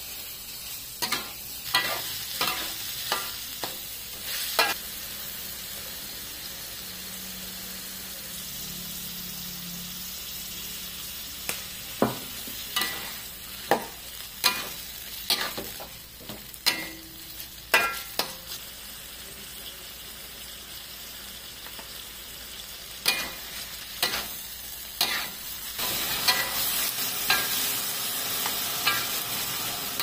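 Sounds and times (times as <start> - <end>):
food sizzling: 0.0 - 30.0
metal spatula scraping a wok: 1.0 - 3.3, 25.0 - 30.0.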